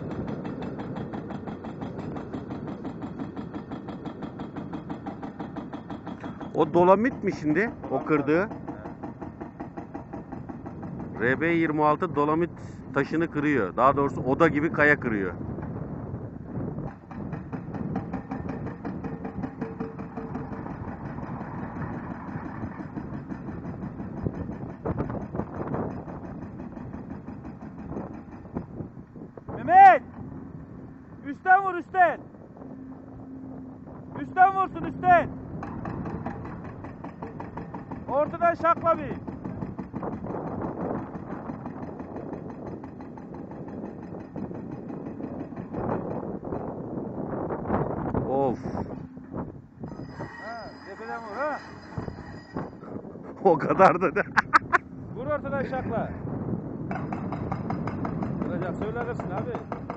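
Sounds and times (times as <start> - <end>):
hydraulic rock breaker hammering: 0.0 - 11.4, 16.8 - 28.9, 34.5 - 46.8, 56.9 - 59.9
excavator engine running: 0.0 - 11.8, 15.0 - 59.9.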